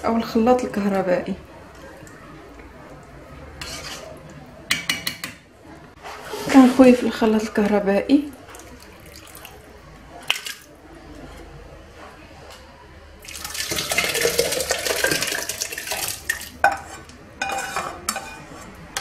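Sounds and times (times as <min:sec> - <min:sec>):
wet sloshing soup pour: 0:08.4 - 0:10.7, 0:13.2 - 0:16.6.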